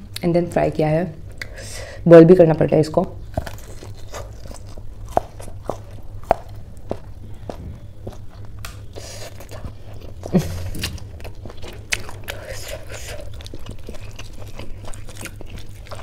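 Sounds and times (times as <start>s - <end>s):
crunchy food being chewed: 3.2s - 16.0s.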